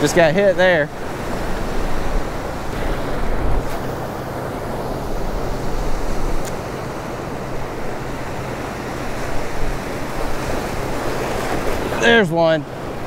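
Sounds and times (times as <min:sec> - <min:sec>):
ocean surf breaking: 0:00.0 - 0:13.0
wind rumbling on microphone: 0:00.0 - 0:13.0.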